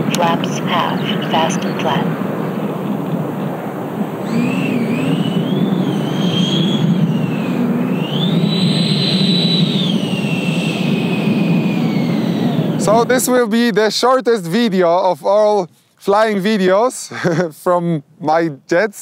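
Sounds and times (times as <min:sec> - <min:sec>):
electric ducted fan whining: 0:00.0 - 0:15.6
rush of air: 0:02.1 - 0:13.1.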